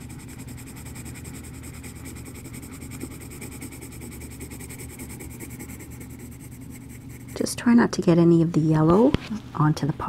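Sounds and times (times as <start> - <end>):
pencil scratching on paper: 0.0 - 7.7.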